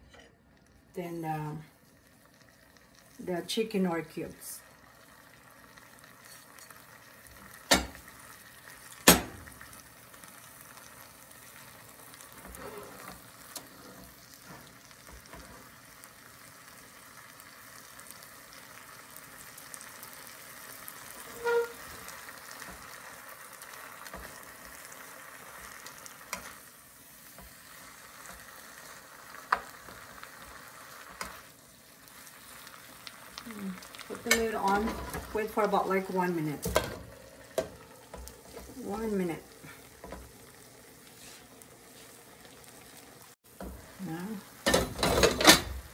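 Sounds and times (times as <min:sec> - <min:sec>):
vegetables sizzling in a frying pan: 0:00.0 - 0:45.9.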